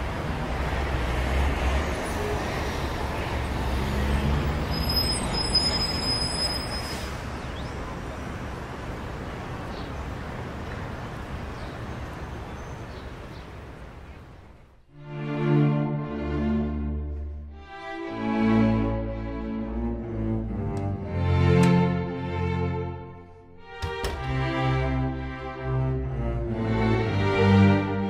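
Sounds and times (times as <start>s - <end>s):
distant road traffic rumble: 0.0s - 14.9s.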